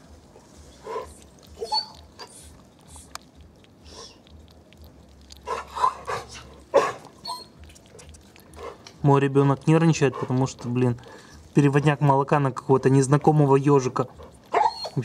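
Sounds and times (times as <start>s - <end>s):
hedgehog smacking and snuffling: 0.0s - 15.0s.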